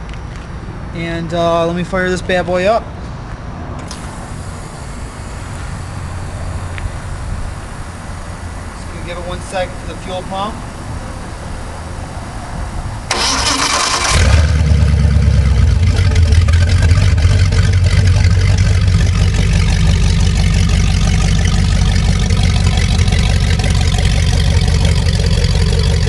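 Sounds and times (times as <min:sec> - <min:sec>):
boat engine starting and idling: 0:13.0 - 0:26.0.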